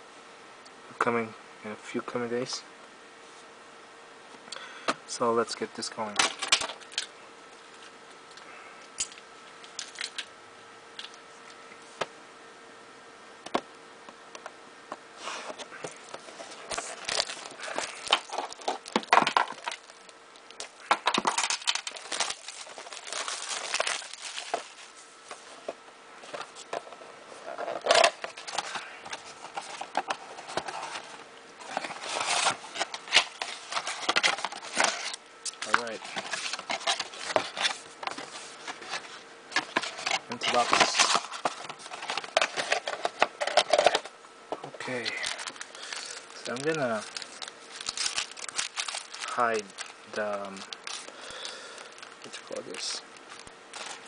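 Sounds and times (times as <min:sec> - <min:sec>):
plastic wrap crinkling: 0:15.6 - 0:25.6, 0:26.2 - 0:44.1, 0:44.8 - 0:54.0.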